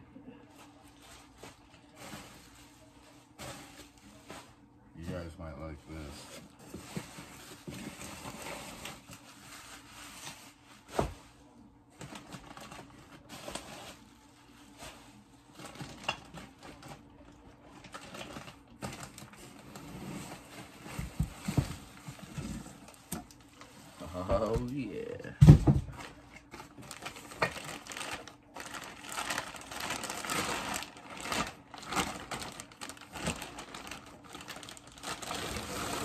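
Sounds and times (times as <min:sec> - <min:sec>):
plastic bags crinkling: 0:12.0 - 0:25.1, 0:25.8 - 0:36.0.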